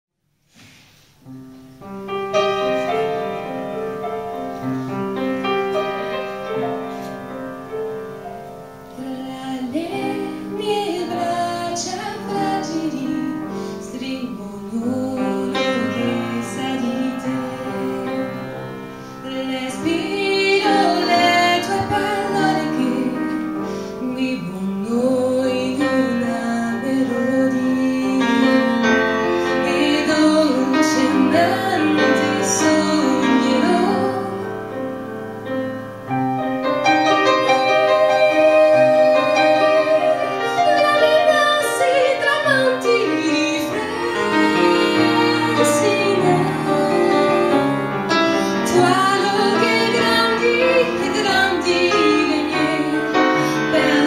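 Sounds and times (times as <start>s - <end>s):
piano playing slow song: 0.9s - 54.0s
woman singing: 9.0s - 18.4s, 19.2s - 34.6s, 37.4s - 54.0s.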